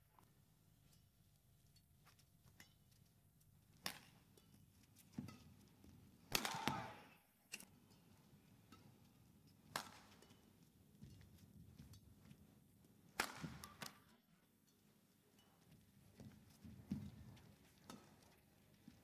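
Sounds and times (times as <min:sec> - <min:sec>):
racket smacking shuttlecock: 0:03.8 - 0:04.2, 0:06.3 - 0:07.0, 0:09.7 - 0:10.2, 0:13.2 - 0:14.1.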